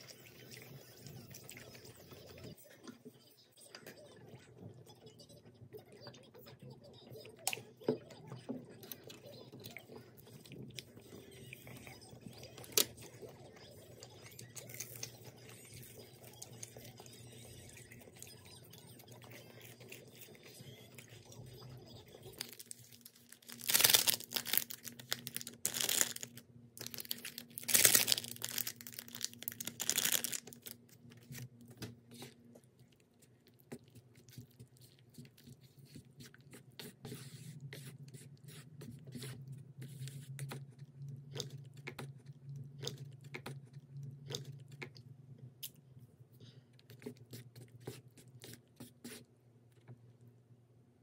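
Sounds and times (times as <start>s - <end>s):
chopsticks stirring in a paper cup: 8.4s - 41.0s, 46.6s - 49.3s
packet rustling and tearing: 22.4s - 31.4s.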